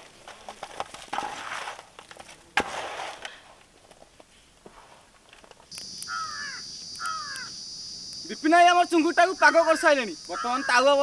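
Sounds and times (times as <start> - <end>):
faint ticks: 5.7 - 8.3.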